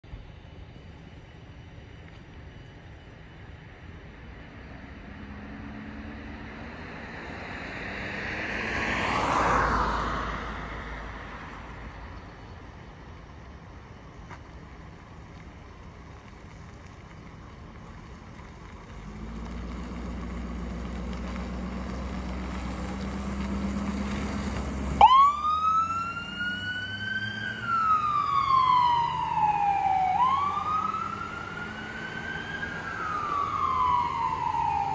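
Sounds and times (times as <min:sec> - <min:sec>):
ambulance engine: 0:00.0 - 0:34.9
siren wailing: 0:25.0 - 0:34.9.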